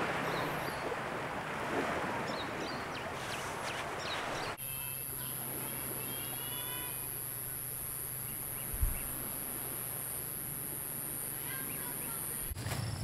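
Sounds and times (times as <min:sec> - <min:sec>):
insect high-pitched trill: 0:04.6 - 0:13.0
pulsing insect trill: 0:04.6 - 0:13.0.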